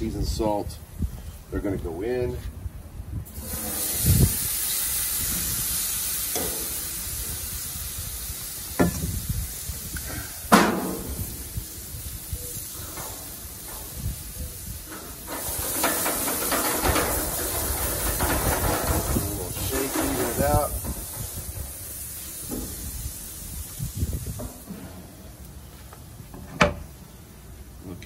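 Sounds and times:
vegetables sizzling in grill pan: 3.3s - 24.6s.

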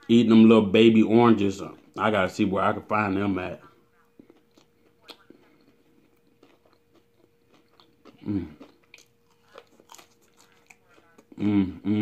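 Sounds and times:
person chewing: 3.6s - 12.0s
person humming: 8.2s - 8.6s, 11.3s - 12.0s.

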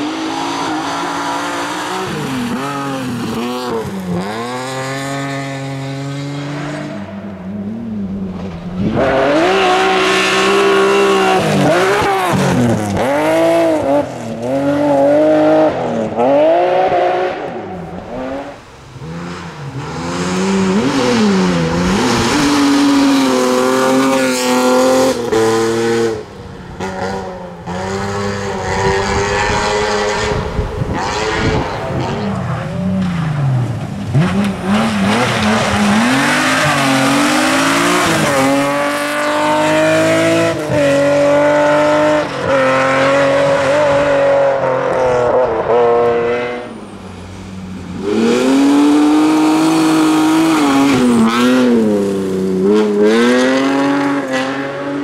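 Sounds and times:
rally car engine revving: 0.0s - 55.0s.

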